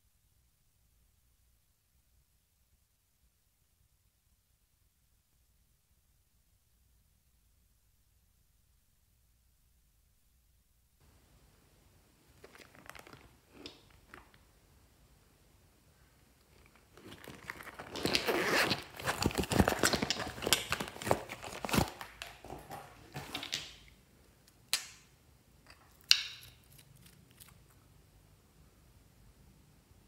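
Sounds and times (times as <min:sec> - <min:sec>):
plastic pouch rustling and crackling: 0:12.3 - 0:14.4, 0:16.5 - 0:23.8.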